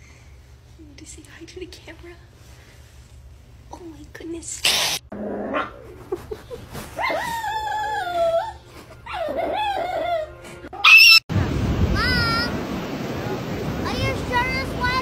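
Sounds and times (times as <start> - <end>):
puppy howling: 7.0 - 11.2.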